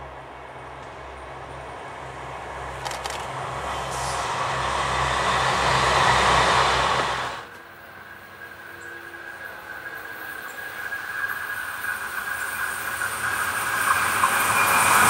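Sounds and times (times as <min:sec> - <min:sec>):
diesel engine drone: 0:00.0 - 0:08.4
rail and wheel noise: 0:00.0 - 0:15.0
sharp clicks: 0:02.8 - 0:03.4.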